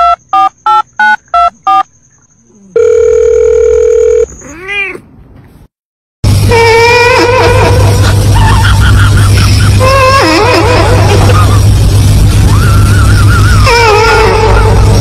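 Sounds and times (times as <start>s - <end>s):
telephone keypad beeps: 0.0s - 1.8s
steady phone tone: 0.0s - 1.9s, 2.7s - 4.3s
cat meowing: 4.4s - 5.1s
low hum: 6.3s - 15.0s.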